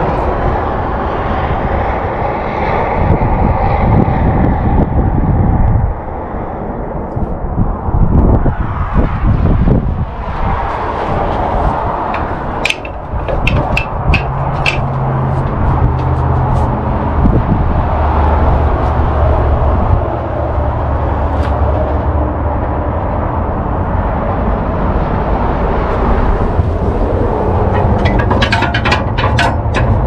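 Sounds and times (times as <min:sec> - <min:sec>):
steady low rumble: 0:00.0 - 0:30.0
metal levers clicking and knocking: 0:12.1 - 0:15.7, 0:27.6 - 0:30.0.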